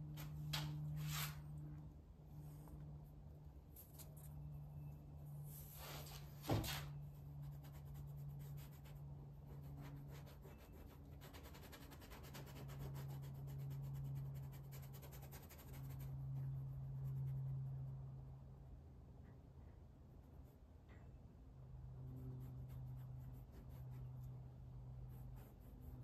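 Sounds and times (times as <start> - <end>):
low steady hum: 0.0 - 26.0
paintbrush scratching on canvas: 5.5 - 18.0, 22.0 - 26.0.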